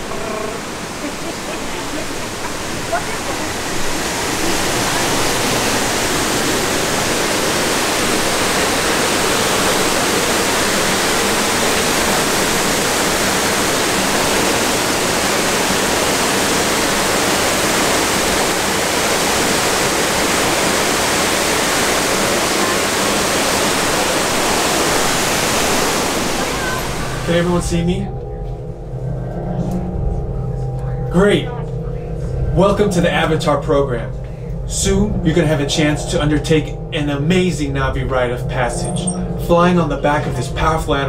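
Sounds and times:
waterfall rushing over rocks: 0.0s - 27.3s.

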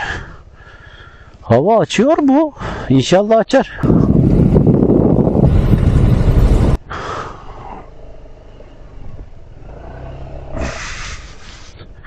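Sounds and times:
wind noise on microphone: 3.8s - 6.8s
scooter engine running low: 4.0s - 6.8s.

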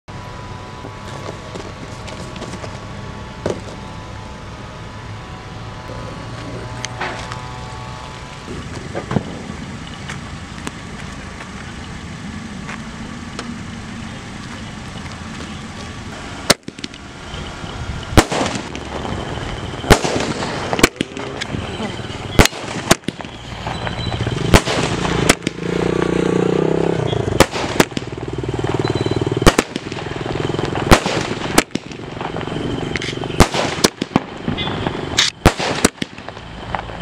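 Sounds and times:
firework crackling: 0.1s - 37.0s
low background hum: 0.1s - 37.0s
firework bangs: 6.7s - 11.8s, 16.0s - 37.0s.

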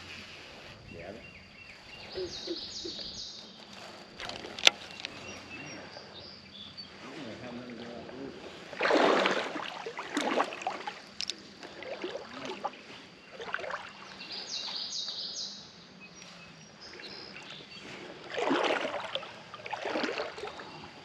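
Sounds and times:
bird call: 1.0s - 3.8s
water splashing and sloshing: 2.0s - 21.0s.

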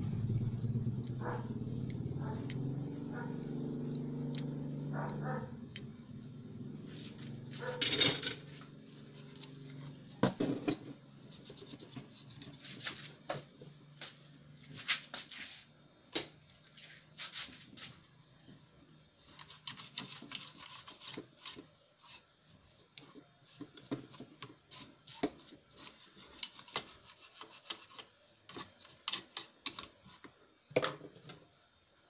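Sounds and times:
stiff brush scrubbing circuit board: 11.2s - 13.0s, 19.2s - 22.4s, 23.0s - 30.4s.

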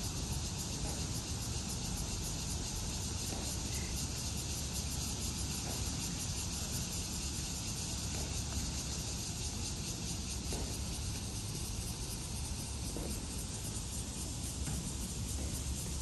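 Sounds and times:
insect drone: 0.0s - 16.0s.

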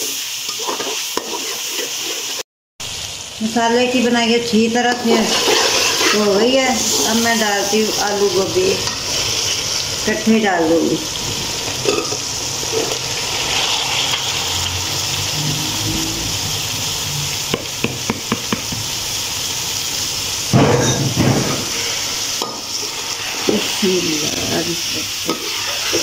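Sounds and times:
masala sizzling in a pot: 0.0s - 26.0s
rush of noise: 12.4s - 17.8s.

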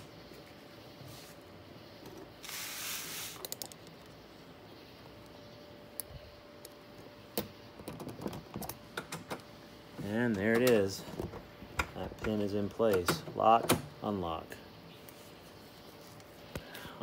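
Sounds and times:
rustling scrape: 2.4s - 3.4s.

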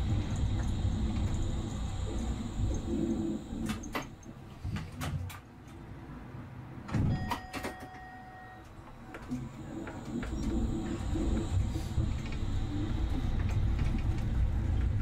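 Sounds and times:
low vehicle rumble: 0.0s - 4.3s, 9.4s - 15.0s.

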